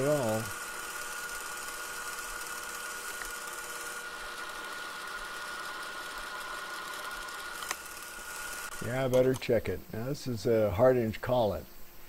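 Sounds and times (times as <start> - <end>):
lathe running with thin whine: 0.0 - 9.4.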